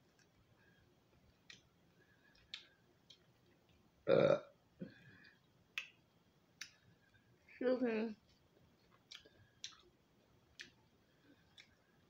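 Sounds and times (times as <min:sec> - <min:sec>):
person burping: 0:04.0 - 0:05.0.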